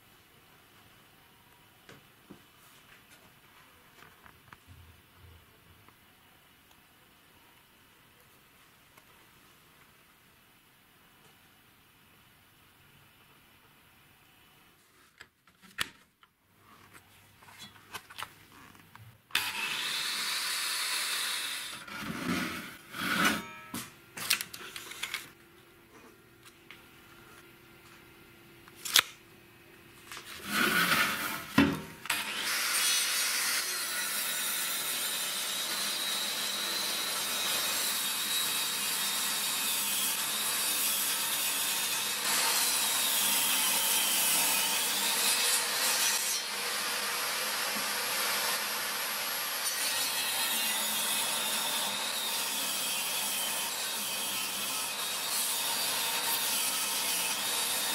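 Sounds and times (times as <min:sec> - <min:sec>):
table saw cutting wood: 0:19.4 - 0:23.8, 0:30.4 - 0:57.9.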